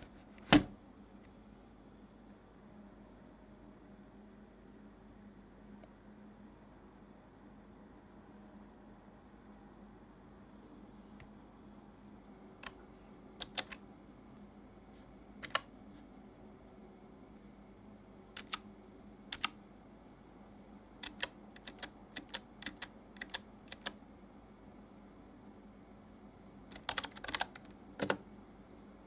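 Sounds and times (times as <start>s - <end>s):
keyboard keys clicking: 13.4s - 13.8s, 15.4s - 15.7s, 18.4s - 18.6s, 19.3s - 19.6s, 21.0s - 24.0s, 26.7s - 28.2s.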